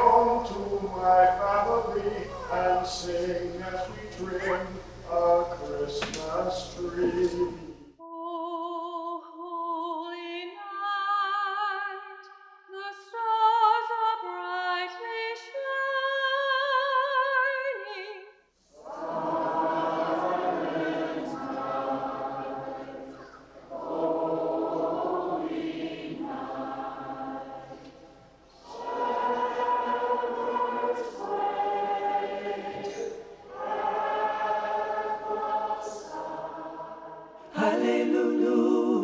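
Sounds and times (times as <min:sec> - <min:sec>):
voices singing in harmony: 0:00.0 - 0:08.7, 0:18.8 - 0:39.0
choir singing with room echo: 0:00.0 - 0:09.0, 0:18.6 - 0:39.0.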